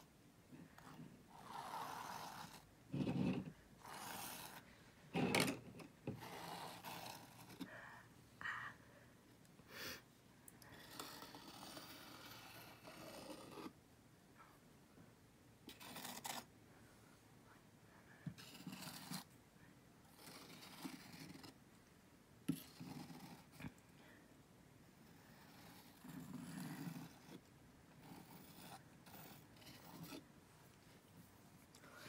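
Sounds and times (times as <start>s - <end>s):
palette knife scraping on canvas: 0.8s - 7.7s, 10.8s - 13.8s, 15.7s - 16.5s, 18.4s - 19.3s, 20.1s - 21.6s, 22.5s - 23.6s, 25.0s - 30.3s.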